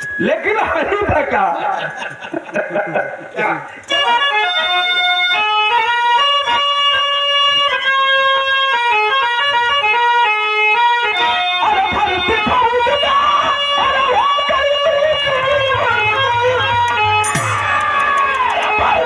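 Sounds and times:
low beats: 15.6s - 19.0s
plucked string line: 17.2s - 18.7s.

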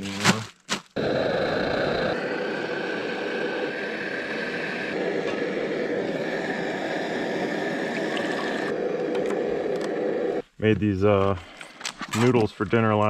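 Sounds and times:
camp stove burner hissing: 0.9s - 10.5s
water pouring into a bottle: 7.8s - 8.7s.

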